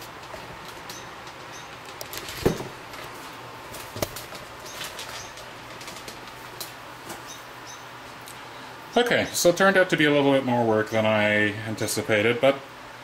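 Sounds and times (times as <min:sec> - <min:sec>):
sharp knocks: 0:02.4 - 0:02.8.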